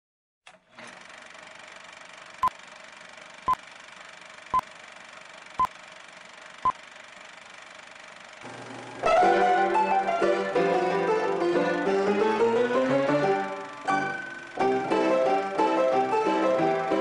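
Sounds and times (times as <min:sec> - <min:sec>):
projector-like whir and hiss: 0:01.0 - 0:09.1, 0:13.4 - 0:14.8.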